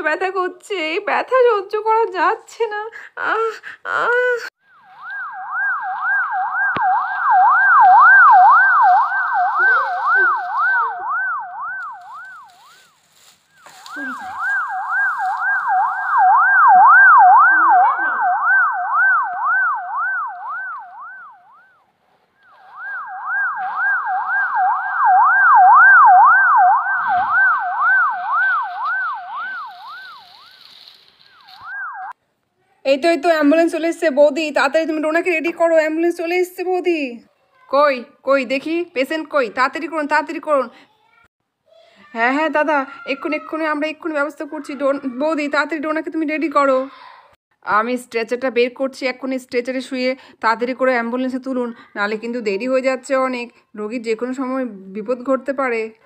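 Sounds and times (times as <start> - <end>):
ambulance siren wailing: 4.6 - 12.9, 13.7 - 21.9, 22.5 - 32.2.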